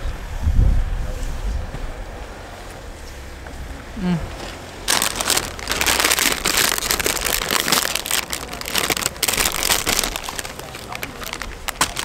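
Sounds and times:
paper or plastic crinkling: 4.4s - 12.0s.

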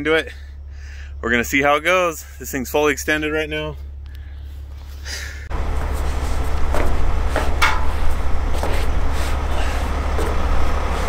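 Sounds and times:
truck engine running: 0.0s - 11.0s
knocks on steel bed: 6.8s - 7.9s.

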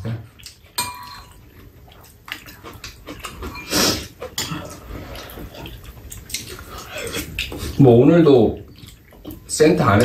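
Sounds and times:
chewing food: 0.2s - 9.8s
slurping noodles: 3.6s - 5.8s.

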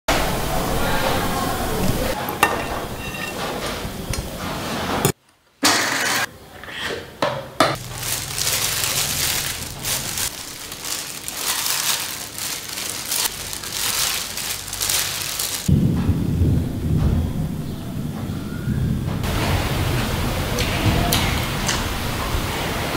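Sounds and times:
hand mixing wet salad: 7.8s - 15.7s.

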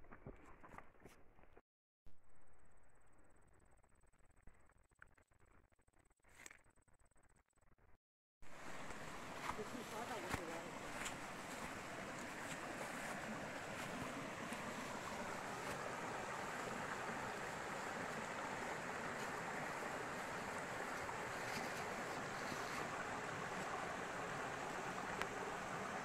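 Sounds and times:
stream splashing over rocks: 8.5s - 26.0s.

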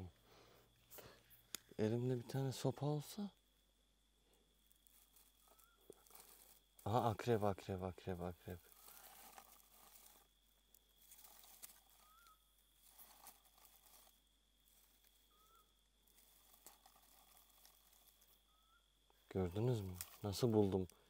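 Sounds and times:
faint steady high tone: 1.0s - 21.0s
faint whistled calls: 5.3s - 7.4s, 11.0s - 13.8s, 14.7s - 16.8s, 18.0s - 21.0s.

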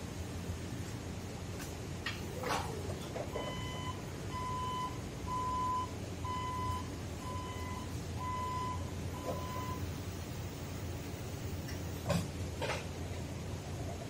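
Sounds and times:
low steady hum: 0.0s - 14.0s
warning beeper beeping: 3.3s - 9.9s.

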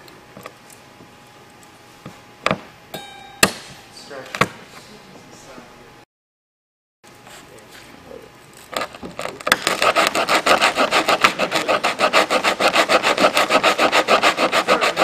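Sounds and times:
hand sanding rasping strokes: 9.6s - 15.0s.

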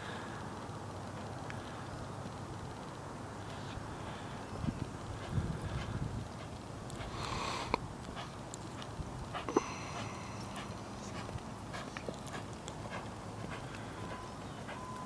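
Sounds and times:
hoofbeats in sand: 2.2s - 15.0s
horse breathing: 3.4s - 15.0s.

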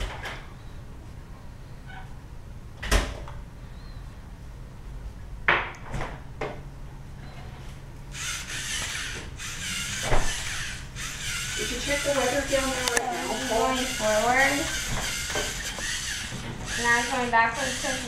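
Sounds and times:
robot motors whirring: 8.1s - 18.0s.

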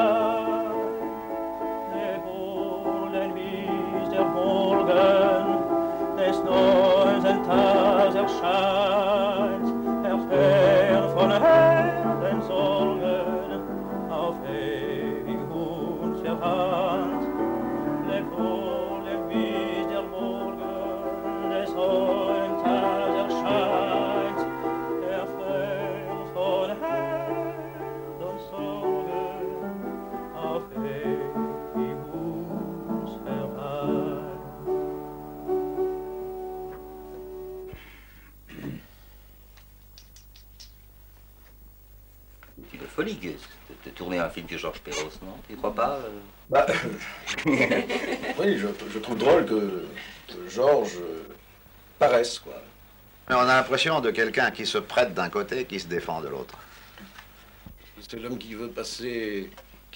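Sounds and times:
instrumental accompaniment: 0.0s - 38.6s
person singing with vibrato: 0.0s - 38.8s.

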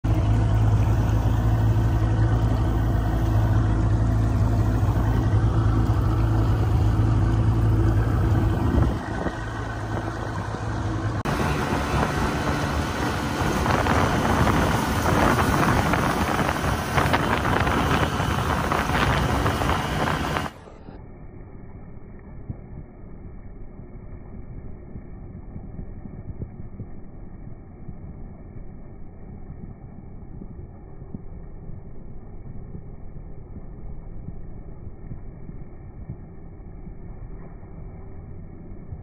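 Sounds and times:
moving water: 0.0s - 21.0s
boat engine humming: 0.0s - 39.0s
wind on microphone: 6.6s - 20.6s.

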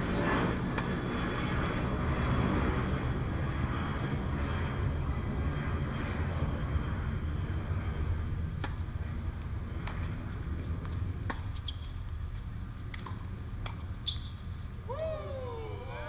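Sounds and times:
steady low rumble: 0.0s - 16.0s
tennis ball struck and bouncing: 8.6s - 8.9s, 9.8s - 10.1s, 10.9s - 12.0s, 12.9s - 13.9s.

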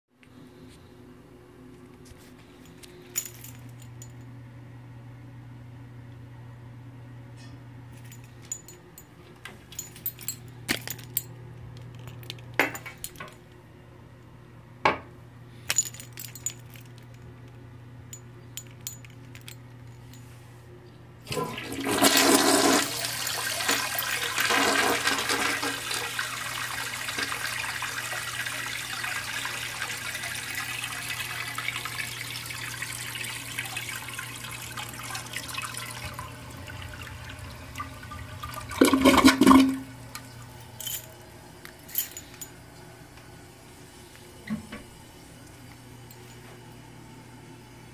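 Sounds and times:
toilet flushing: 21.3s - 40.6s.

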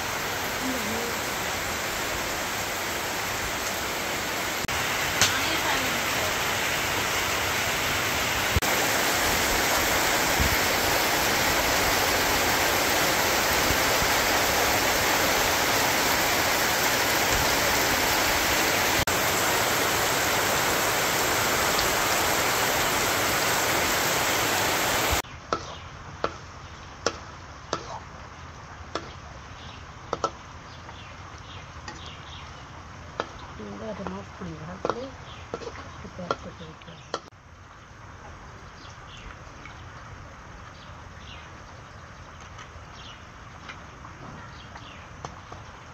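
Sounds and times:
heavy rain: 0.0s - 25.2s
water dripping: 3.4s - 3.9s, 8.5s - 24.4s, 30.1s - 40.8s, 41.6s - 45.9s.

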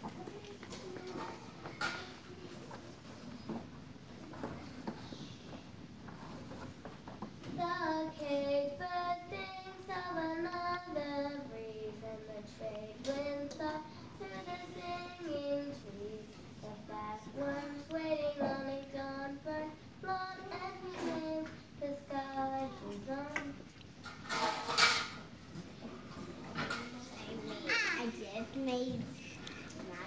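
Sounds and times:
girl singing unaccompanied: 0.0s - 2.7s, 7.4s - 23.7s, 26.6s - 29.8s.

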